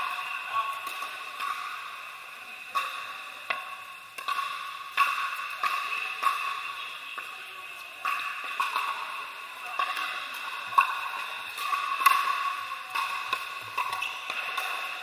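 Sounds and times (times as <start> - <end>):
paddles hitting plastic balls: 8.0 - 15.0.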